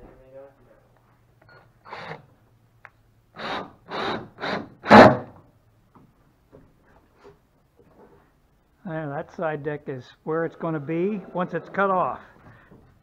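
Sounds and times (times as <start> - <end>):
cordless drill boring into wood: 1.9 - 2.2, 3.4 - 5.2.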